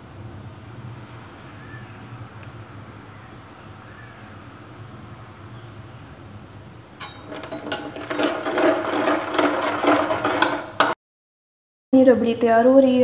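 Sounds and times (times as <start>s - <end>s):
metal spoon scraping saucepan: 7.0s - 11.0s.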